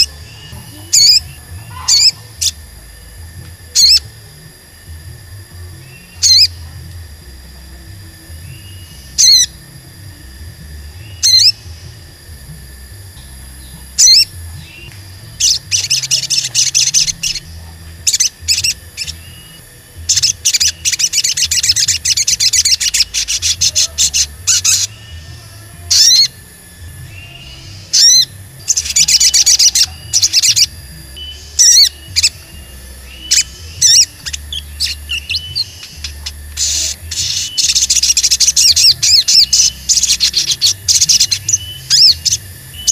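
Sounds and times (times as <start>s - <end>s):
bird fast high twittering: 0.0s - 2.6s, 3.8s - 4.0s, 5.9s - 6.6s, 8.6s - 9.6s, 11.0s - 11.7s, 13.6s - 25.3s, 25.9s - 26.4s, 27.0s - 42.9s
bird sharp high calls: 0.0s - 2.7s, 3.7s - 4.1s, 5.8s - 6.6s, 8.5s - 9.6s, 11.0s - 11.9s, 13.6s - 26.4s, 27.0s - 42.9s.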